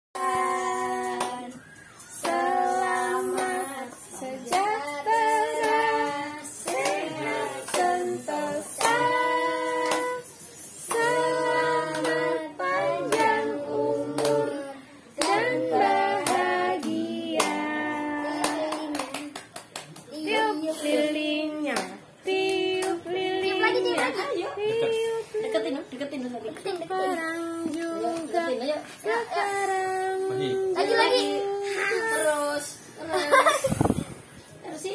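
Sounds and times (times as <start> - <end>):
group singing a birthday song: 0.2 - 34.9
hand claps: 4.5 - 4.8, 6.7 - 8.1, 8.8 - 9.2, 9.8 - 10.2, 10.9 - 11.3, 11.9 - 12.2, 15.2 - 17.7, 18.3 - 20.2, 21.7 - 23.0.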